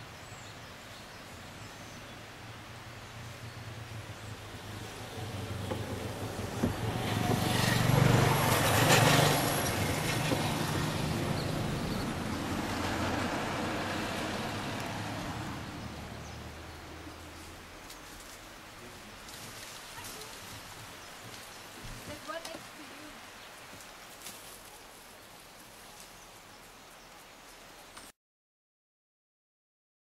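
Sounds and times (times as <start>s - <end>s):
vehicle driving past: 3.0s - 17.7s.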